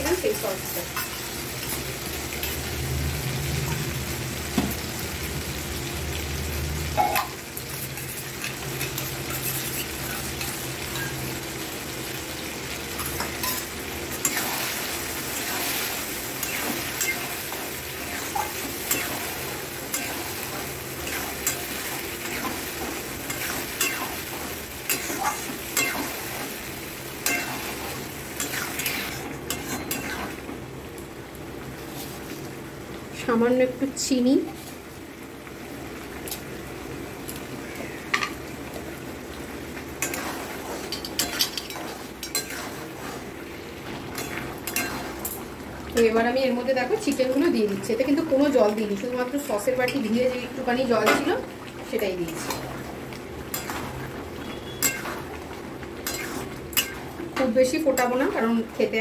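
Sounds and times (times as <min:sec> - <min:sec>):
vegetables sizzling in a pan: 0:00.0 - 0:59.0
metal spatula scraping a pan: 0:07.0 - 0:11.1, 0:40.0 - 0:43.3, 0:54.5 - 0:55.3, 0:56.0 - 0:57.0.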